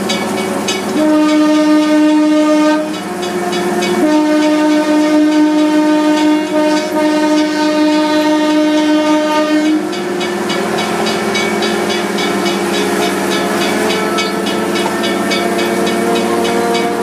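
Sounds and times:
locomotive horn chord: 0.0s - 17.0s
rapid repeating clanging: 9.6s - 17.0s.

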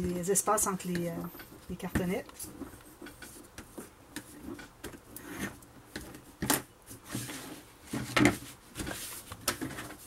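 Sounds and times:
paper rustling on cardboard: 6.9s - 10.0s.

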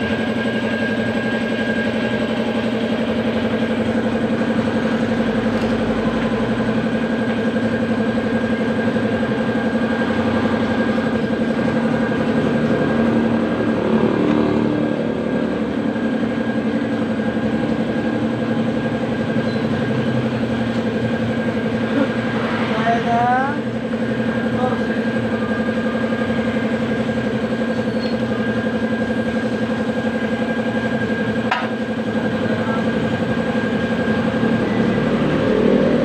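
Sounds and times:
motorcycle engine idling: 0.0s - 22.3s.

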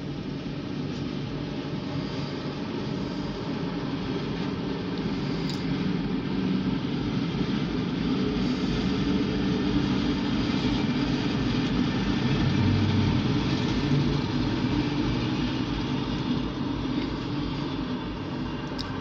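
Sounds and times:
locomotive engine rumbling: 8.4s - 19.0s.

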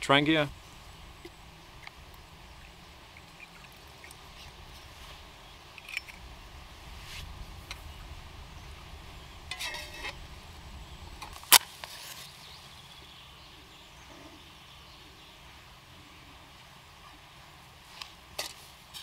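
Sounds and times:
faint outdoor background: 0.0s - 19.0s.

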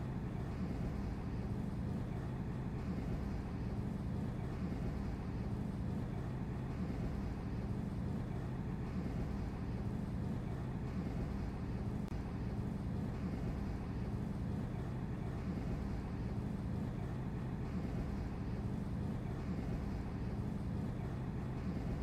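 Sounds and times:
low rumble of harbour noise: 0.0s - 22.0s.

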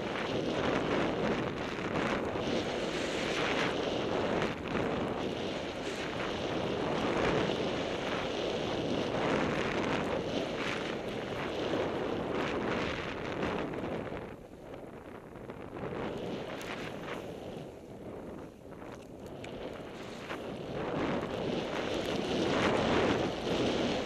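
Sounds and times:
skis hissing through snow: 0.0s - 11.8s, 15.9s - 18.7s, 19.8s - 20.9s
wind rushing over microphone: 0.0s - 24.0s.

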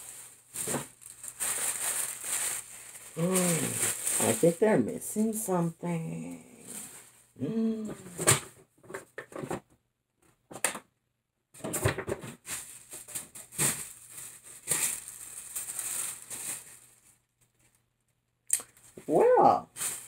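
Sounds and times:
packing paper rustling: 0.0s - 5.4s, 11.9s - 17.8s, 19.7s - 20.0s.

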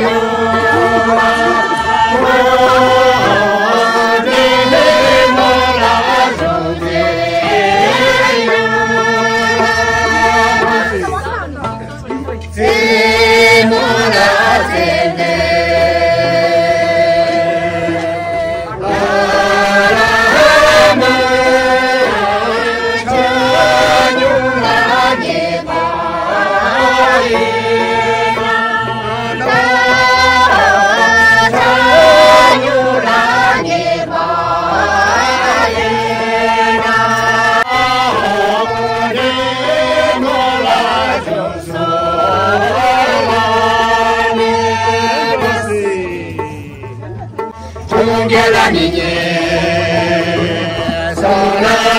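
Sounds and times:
men and women singing in chorus: 0.0s - 51.9s
plucked lute: 0.0s - 51.9s
steady low beat: 0.0s - 51.9s.

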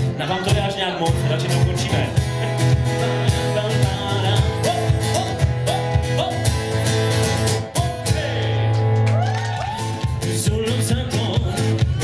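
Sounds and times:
acoustic guitar strumming: 0.0s - 9.2s, 9.8s - 12.0s
person singing: 0.1s - 6.6s, 7.7s - 8.9s.

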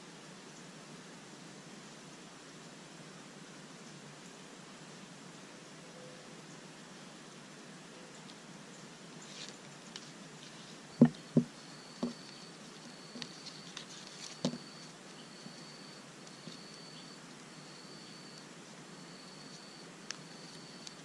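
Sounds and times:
bark strips woven by hand: 9.2s - 17.5s
sharp thumps: 11.0s - 12.3s.

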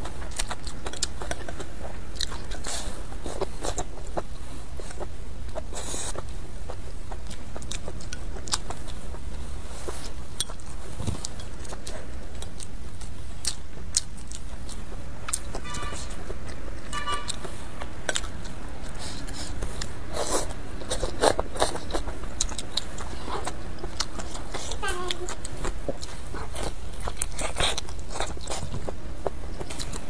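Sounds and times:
chewing and mouth sounds: 0.0s - 30.0s
steady low rumble: 0.0s - 30.0s
short pitched toots: 16.9s - 17.4s.

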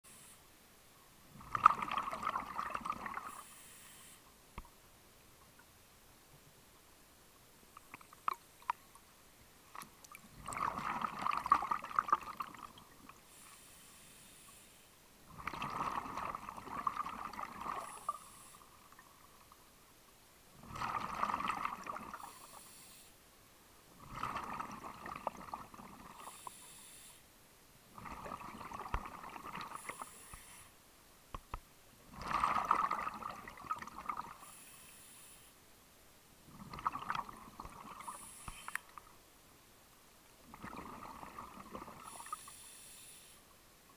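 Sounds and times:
regulator inhale hiss: 0.1s - 0.5s, 3.2s - 4.3s, 13.2s - 15.0s, 17.8s - 18.8s, 22.2s - 23.2s, 26.2s - 27.3s, 29.7s - 30.8s, 34.4s - 35.6s, 38.0s - 38.9s, 42.0s - 43.5s
exhaled bubbles gurgling underwater: 1.3s - 3.5s, 10.2s - 13.2s, 15.3s - 19.5s, 20.6s - 22.5s, 24.0s - 26.4s, 27.9s - 30.2s, 32.1s - 34.4s, 36.5s - 39.0s, 40.4s - 42.4s.

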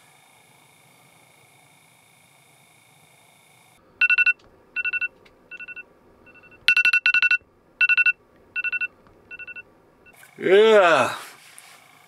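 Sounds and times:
phone alarm beeping: 4.0s - 9.6s.

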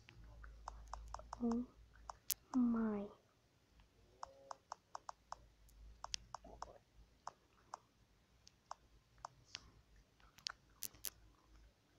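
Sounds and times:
touchscreen keyboard clicks: 0.6s - 2.6s, 4.2s - 5.4s, 6.0s - 7.8s, 10.4s - 11.1s.

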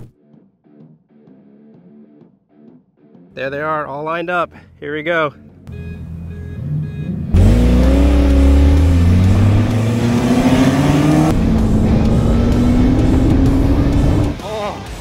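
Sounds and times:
car engines revving hard: 6.0s - 14.4s.

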